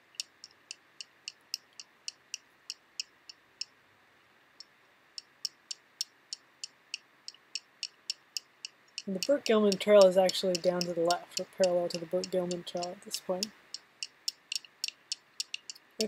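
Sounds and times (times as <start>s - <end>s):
light sharp clicks: 5.4s - 15.9s.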